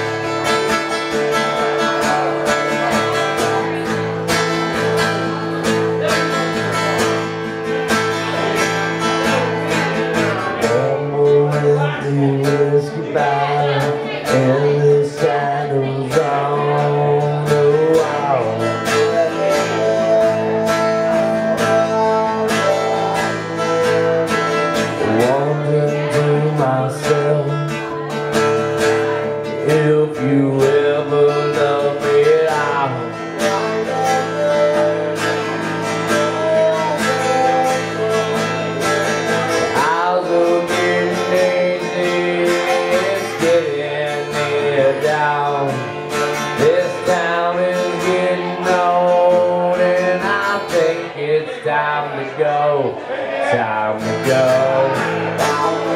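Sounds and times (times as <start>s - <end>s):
acoustic guitars strummed and picked: 0.0s - 55.9s
man singing: 0.0s - 55.9s.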